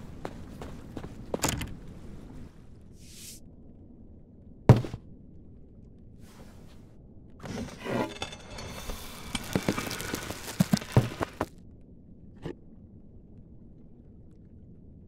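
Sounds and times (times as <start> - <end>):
rustling: 7.4 - 11.5.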